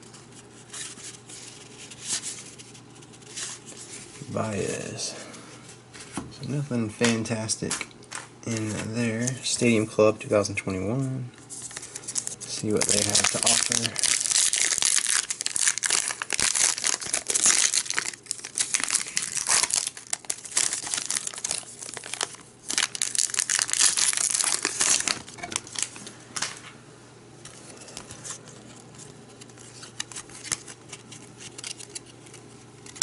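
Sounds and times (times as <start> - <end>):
cards clicking and rustling: 11.6 - 26.6, 27.4 - 33.0
foil wrapper tearing and crinkling: 11.7 - 26.0.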